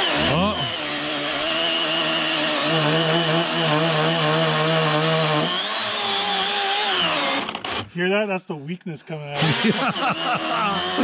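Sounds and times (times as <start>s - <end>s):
battery chainsaw cutting log: 0.0s - 8.0s, 9.3s - 11.0s.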